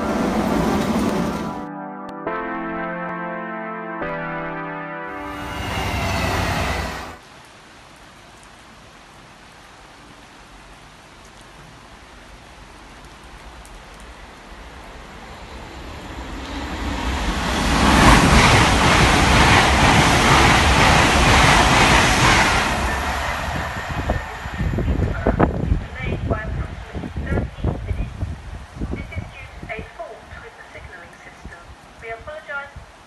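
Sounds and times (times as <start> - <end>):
electric train passing at speed: 0.0 - 1.7, 5.1 - 7.2, 14.1 - 27.9.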